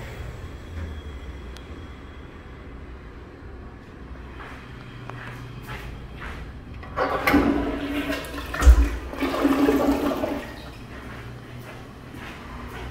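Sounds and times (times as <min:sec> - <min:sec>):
toilet flushing water rushing: 0:06.8 - 0:10.9.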